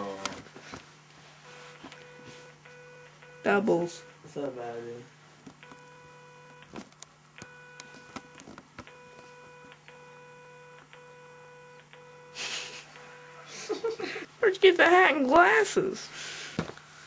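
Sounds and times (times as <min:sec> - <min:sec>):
faint electronic beeps: 0:01.4 - 0:04.4, 0:07.4 - 0:13.6.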